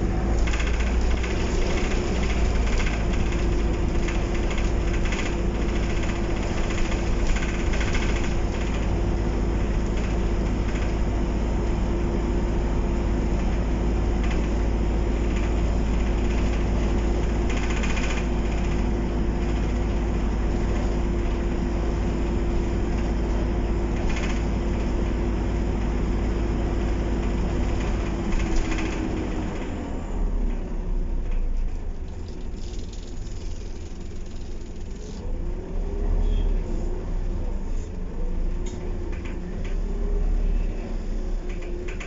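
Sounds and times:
interior fittings rattling: 0:00.0 - 0:11.2, 0:13.3 - 0:21.6, 0:22.6 - 0:29.7, 0:31.2 - 0:35.2
bus engine rumble: 0:00.0 - 0:42.0.

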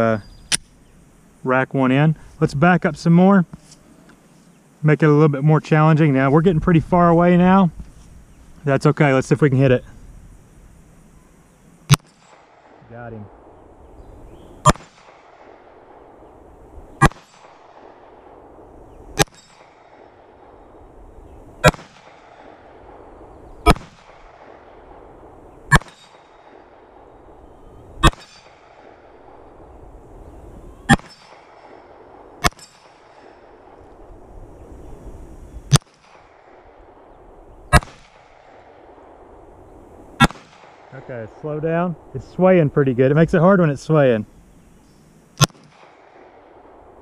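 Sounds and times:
metallic ring of steel target: 0:11.9 - 0:12.5, 0:19.2 - 0:19.7, 0:25.7 - 0:26.4, 0:28.0 - 0:28.6, 0:30.9 - 0:31.4, 0:32.4 - 0:33.2
pistol shots: 0:11.9 - 0:12.8, 0:14.6 - 0:16.2, 0:17.0 - 0:18.6, 0:19.2 - 0:20.6, 0:21.6 - 0:27.0, 0:28.0 - 0:29.4, 0:30.9 - 0:33.8, 0:35.7 - 0:39.0, 0:40.2 - 0:41.0, 0:45.4 - 0:46.8.

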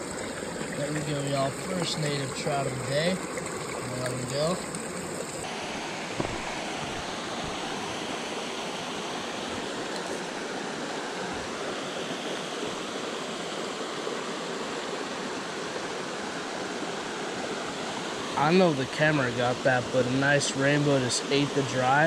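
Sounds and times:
mountain stream rushing over boulders: 0:00.0 - 0:22.0.

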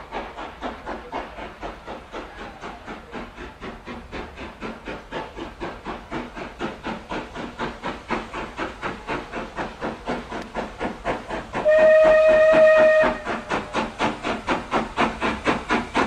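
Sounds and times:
steam locomotive chuffing: 0:00.0 - 0:16.0
steam whistle: 0:11.6 - 0:13.4.

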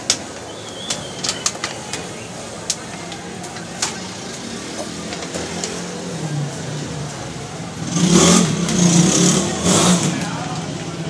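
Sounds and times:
engine running and revving: 0:04.0 - 0:11.0.

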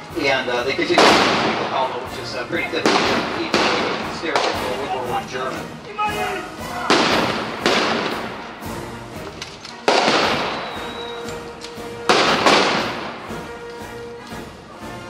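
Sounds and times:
rifle shots echoing: 0:00.8 - 0:05.2, 0:06.9 - 0:08.8, 0:09.4 - 0:13.4.

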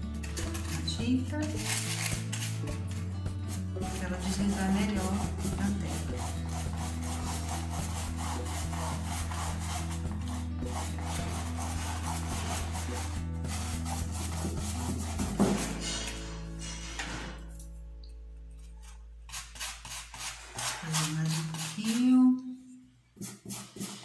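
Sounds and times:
brush scrubbing on canvas: 0:03.8 - 0:15.7, 0:19.3 - 0:22.0.

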